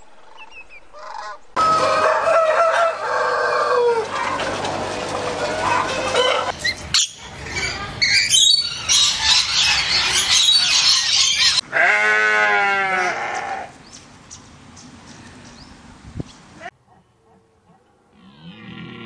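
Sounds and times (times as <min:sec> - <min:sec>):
sheep bleating: 0:11.7 - 0:13.7.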